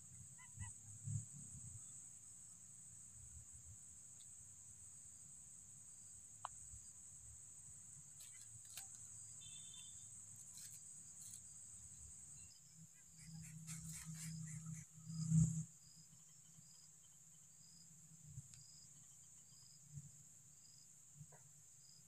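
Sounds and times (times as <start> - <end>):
insects chirring: 0.0 - 22.0
dry grass crackling and rustling: 10.5 - 11.4.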